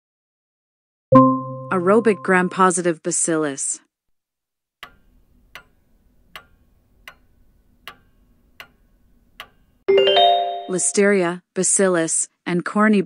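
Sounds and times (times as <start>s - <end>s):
clock ticking: 4.8s - 9.8s.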